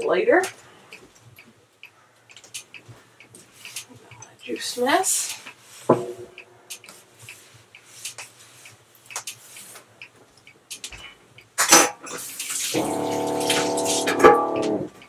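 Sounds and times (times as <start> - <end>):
water running into a sink: 12.4 - 14.2
steady hum: 12.7 - 15.0.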